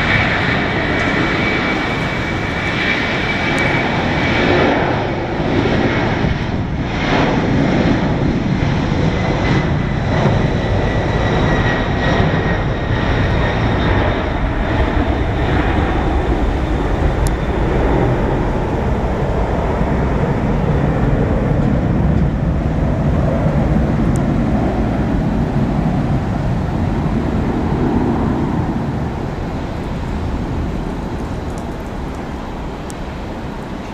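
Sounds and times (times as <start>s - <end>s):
jet engines rumbling at takeoff: 0.0s - 33.9s.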